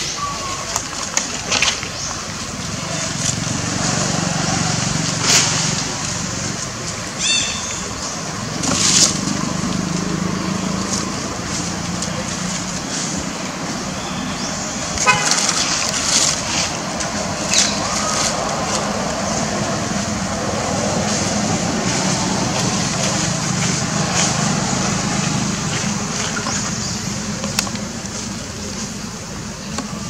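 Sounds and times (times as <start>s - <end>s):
background traffic noise: 0.0s - 30.0s
car horn toot: 15.0s - 15.5s.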